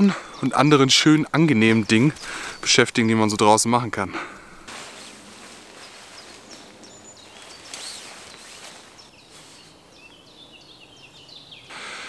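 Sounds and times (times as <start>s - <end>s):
birds singing and chirping: 0.0s - 11.8s
tent fabric rustling: 4.6s - 10.0s.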